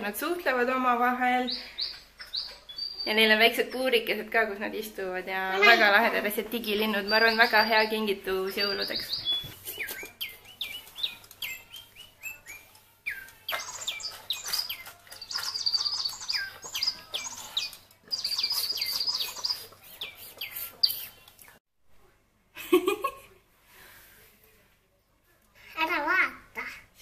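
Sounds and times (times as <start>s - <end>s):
electronic toy bird chirps: 7.0s - 19.7s.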